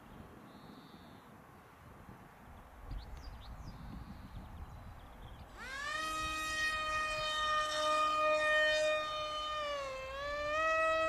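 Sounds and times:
model plane motor whining: 0:05.5 - 0:11.0.

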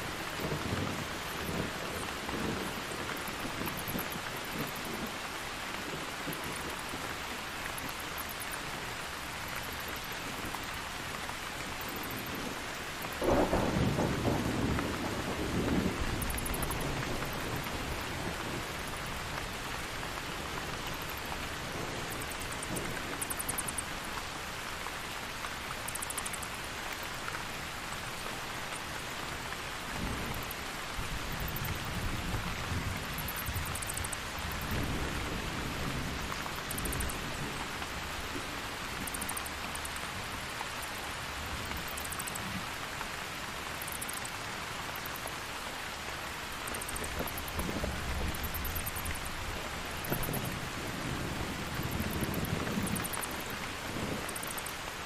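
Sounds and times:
steady rain falling: 0:00.0 - 0:55.0
low rumble of thunder: 0:00.2 - 0:05.2, 0:11.8 - 0:23.8, 0:29.9 - 0:39.4, 0:46.8 - 0:54.7.

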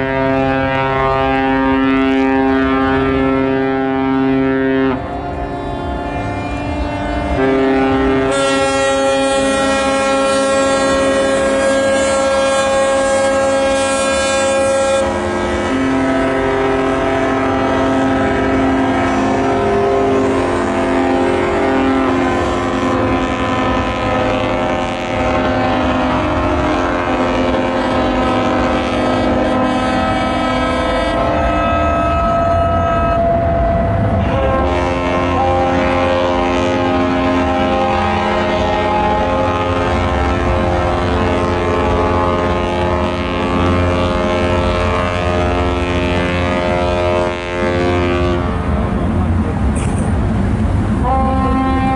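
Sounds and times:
ships' horns blasting: 0:00.0 - 0:51.9.

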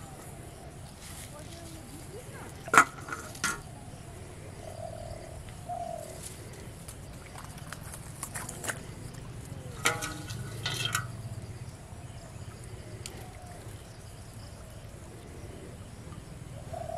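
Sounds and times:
clicks and rustles: 0:09.8 - 0:11.2.

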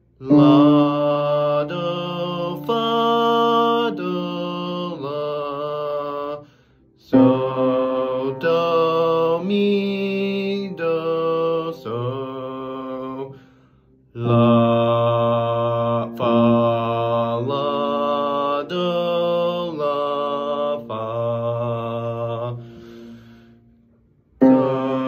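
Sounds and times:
young man singing: 0:00.2 - 0:13.4, 0:14.2 - 0:23.1, 0:24.4 - 0:25.0
breath: 0:06.4 - 0:07.0, 0:13.3 - 0:14.1, 0:22.6 - 0:24.0.

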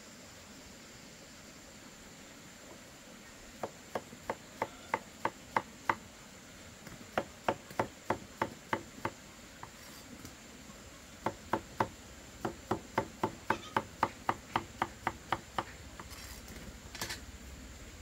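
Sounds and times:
cleaver chopping on wooden board: 0:03.6 - 0:06.0, 0:06.8 - 0:09.8, 0:11.2 - 0:16.2.

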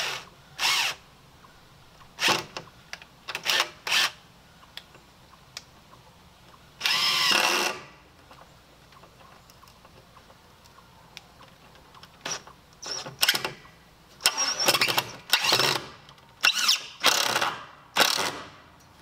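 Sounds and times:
cordless drill driving screws into wood: 0:02.2 - 0:02.6, 0:03.3 - 0:04.2, 0:06.8 - 0:07.9, 0:14.2 - 0:18.6.

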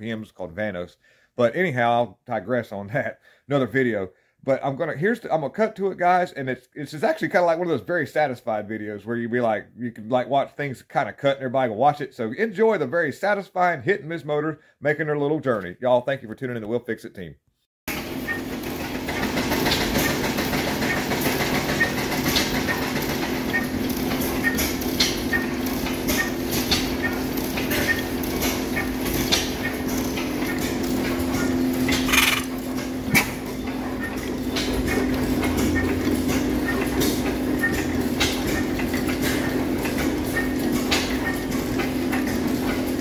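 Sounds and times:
stationary gas engines running: 0:17.9 - 0:43.0
valve gear ticking and clatter: 0:18.6 - 0:33.2.

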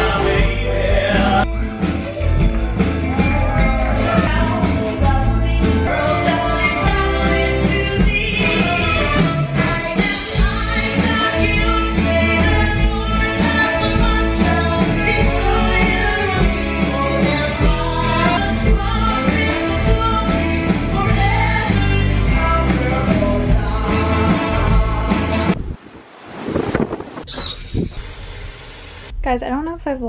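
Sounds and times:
person singing: 0:00.0 - 0:01.6, 0:03.0 - 0:25.6
steady drum beat: 0:00.0 - 0:25.6
upbeat music: 0:00.0 - 0:25.6.

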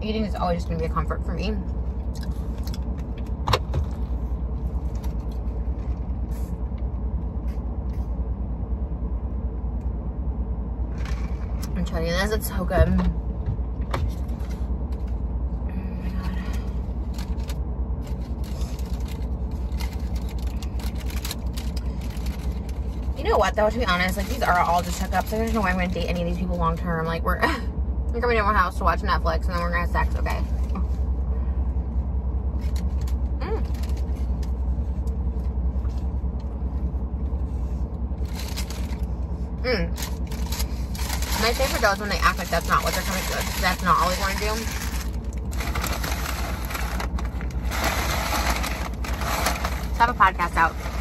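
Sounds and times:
car cabin rumble: 0:00.0 - 0:51.0
paper wrapper crinkling: 0:17.0 - 0:23.2, 0:38.2 - 0:39.2, 0:39.9 - 0:51.0.

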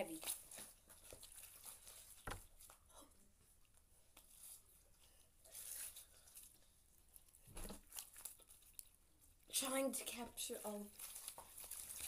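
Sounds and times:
slime squishing and crackling: 0:07.2 - 0:08.9, 0:10.5 - 0:12.0.

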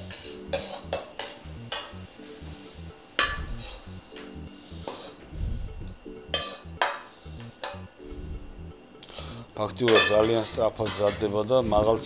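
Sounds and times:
metal ladle scraping a wok: 0:00.0 - 0:01.8, 0:04.8 - 0:05.2.

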